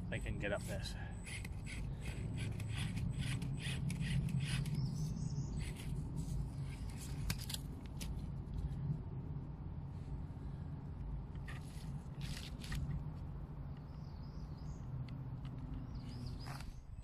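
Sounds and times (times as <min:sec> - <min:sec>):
electric motor and gears humming: 0:00.0 - 0:08.4
tyres and chassis scraping roots: 0:11.3 - 0:13.3.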